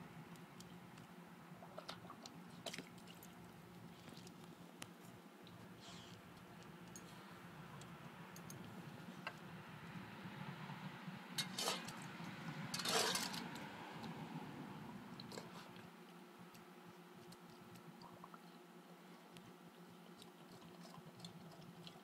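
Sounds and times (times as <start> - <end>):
dog slurping water: 20.1 - 22.0.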